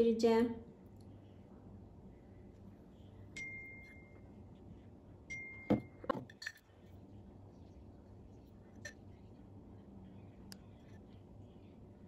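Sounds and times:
metal spoon clinking on a dish: 5.3 - 6.8.

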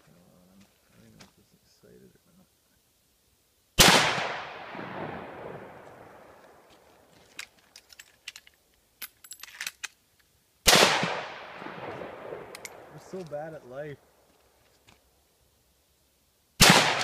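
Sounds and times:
rifle shot echoing: 3.8 - 6.6, 10.6 - 13.2, 16.6 - 17.0.

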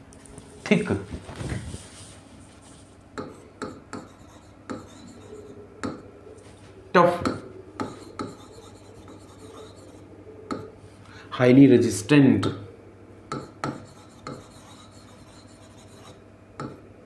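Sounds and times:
marker pen writing on whiteboard: 3.2 - 6.0, 7.3 - 10.7, 13.3 - 16.8.

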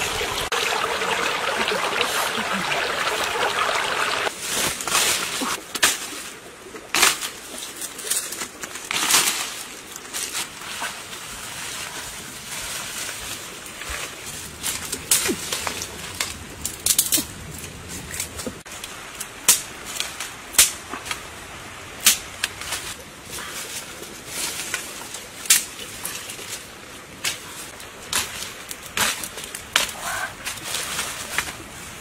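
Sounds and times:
wood fire crackling: 13.1 - 21.4.

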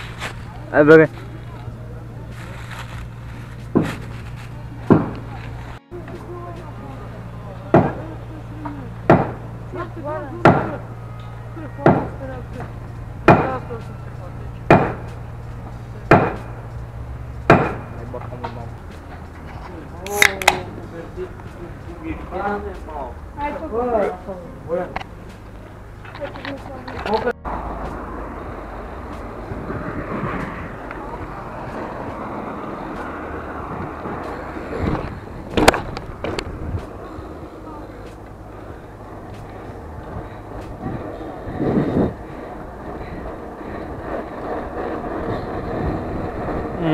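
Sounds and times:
bicycle tyres rolling on asphalt: 0.0 - 46.9
sharp clacks: 14.7 - 20.7.

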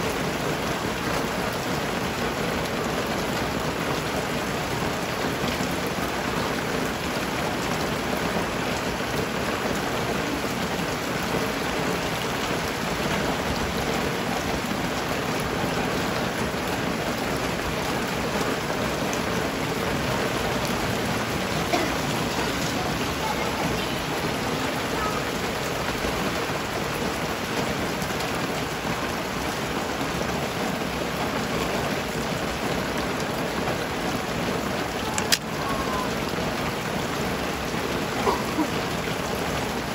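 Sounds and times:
steady rain hiss: 0.0 - 39.9
small tick: 35.2 - 35.4.

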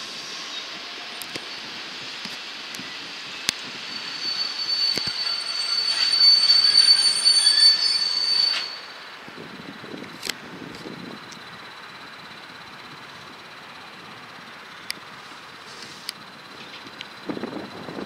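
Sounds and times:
train wheels squealing: 0.0 - 9.7.

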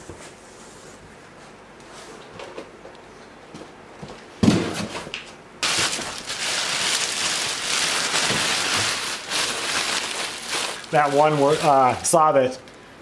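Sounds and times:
plastic bag crinkling: 5.6 - 12.2.

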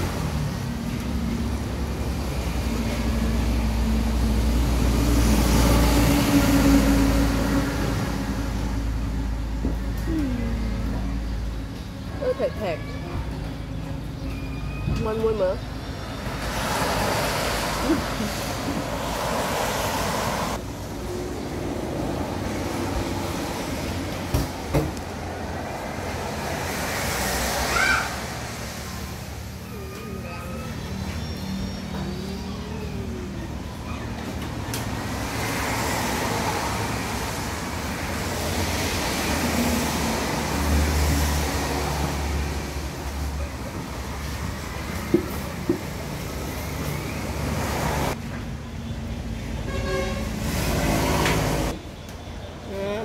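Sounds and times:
large vehicle passing on wet road: 0.0 - 9.5, 16.2 - 24.3, 25.0 - 29.6, 34.9 - 48.2.

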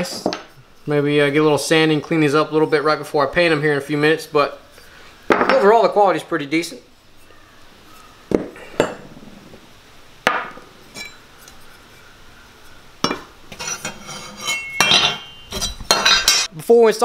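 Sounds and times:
metal brackets clinking: 10.9 - 11.6, 13.0 - 16.5
short metallic ring: 14.4 - 16.5.

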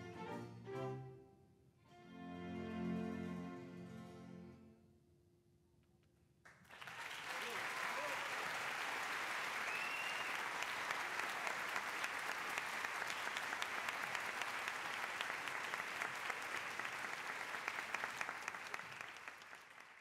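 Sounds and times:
audience applauding: 6.5 - 20.0.

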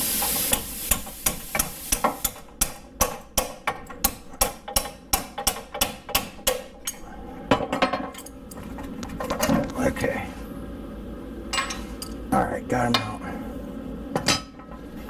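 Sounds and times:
hammer striking steel: 0.5 - 6.7.

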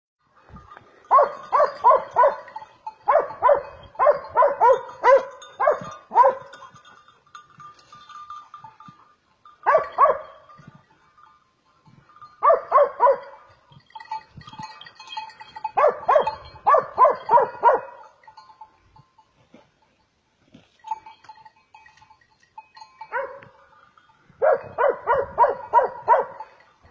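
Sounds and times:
dog barking: 1.1 - 6.5, 9.6 - 10.4, 12.4 - 13.4, 15.8 - 18.0, 23.1 - 23.6, 24.4 - 26.5.

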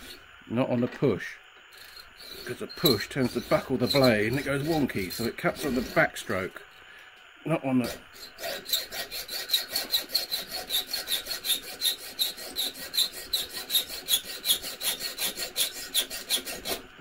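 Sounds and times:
hacksaw sawing metal: 1.8 - 6.2, 7.8 - 16.9.

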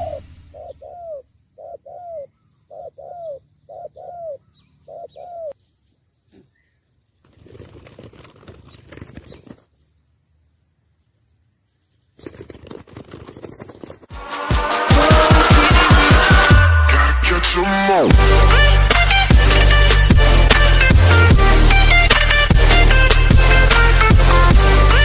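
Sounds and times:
dove cooing: 0.0 - 5.6
scratchy rustling: 12.2 - 14.1.

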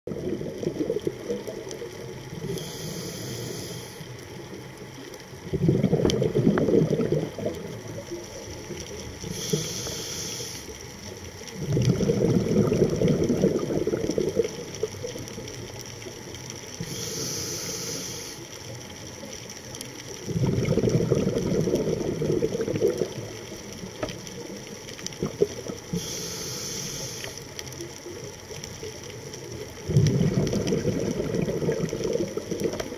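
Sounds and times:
exhaled bubbles bursting: 0.1 - 2.9, 4.8 - 9.8, 11.5 - 15.8, 20.1 - 26.1, 28.1 - 32.9
regulator air hiss on inhale: 2.3 - 4.5, 8.3 - 11.2, 16.6 - 19.0, 25.8 - 28.2.

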